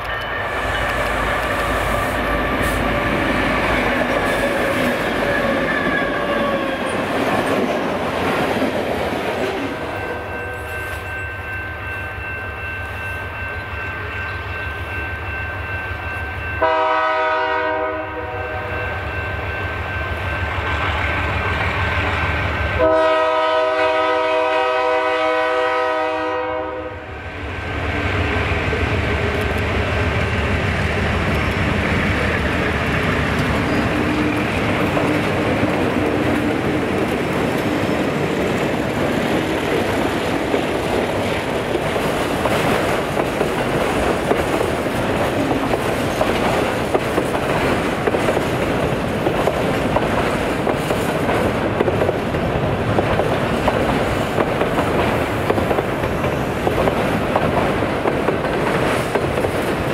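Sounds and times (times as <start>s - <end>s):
train horn blasts: 0.0s - 6.9s, 16.5s - 19.2s, 22.8s - 27.2s
diesel locomotive engine rumble: 0.0s - 59.9s.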